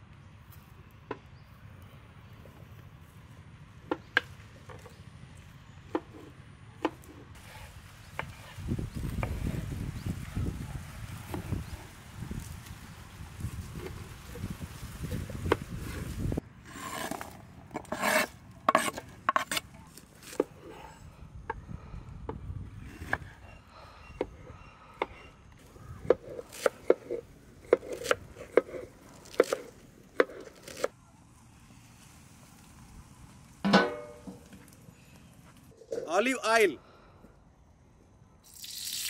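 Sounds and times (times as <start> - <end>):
knife scraping strokes: 16.7 - 21.0.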